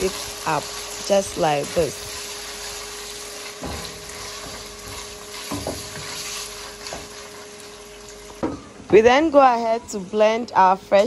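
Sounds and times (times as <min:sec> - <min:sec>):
spatula stirring in wok: 0:00.0 - 0:07.9
food sizzling in hot oil: 0:00.0 - 0:08.8.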